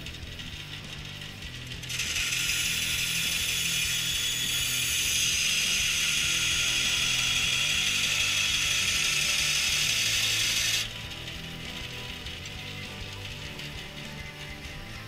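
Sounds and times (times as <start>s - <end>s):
saw motor hum: 0.0s - 15.0s
bandsaw blade cutting metal: 1.8s - 12.6s.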